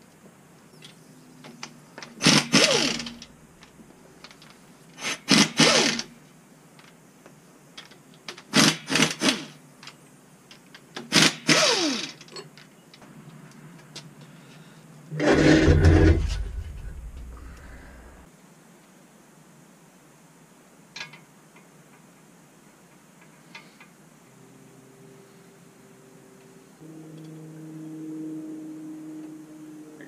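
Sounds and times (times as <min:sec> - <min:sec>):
impact wrench bursts: 0:02.2 - 0:03.3, 0:05.0 - 0:06.2, 0:08.4 - 0:09.6, 0:11.0 - 0:12.2
tool whine spinning down: 0:15.1 - 0:18.2.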